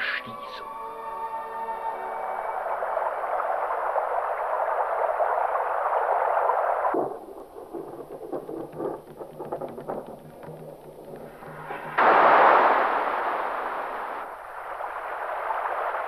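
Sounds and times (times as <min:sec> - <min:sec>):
rushing bubbling water: 0:02.1 - 0:09.2, 0:10.8 - 0:16.0
scattered crackles and clicks: 0:02.7 - 0:16.0.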